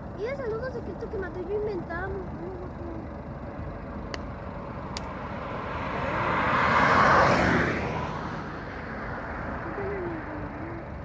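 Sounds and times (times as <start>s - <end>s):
vehicle passing by: 4.3s - 11.0s.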